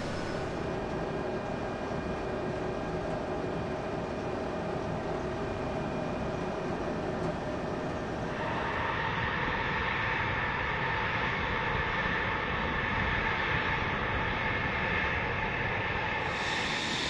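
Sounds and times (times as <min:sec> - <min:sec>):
workshop hall hum: 0:00.0 - 0:00.7, 0:16.2 - 0:17.0
faint steady whines: 0:00.0 - 0:17.0.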